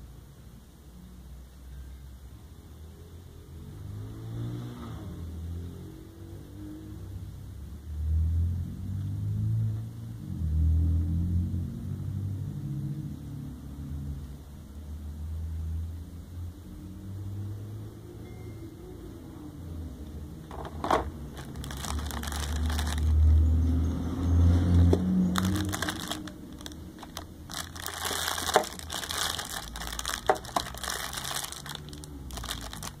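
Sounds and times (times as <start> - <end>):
plastic packaging crinkling: 20.5 - 23.4, 24.8 - 33.0.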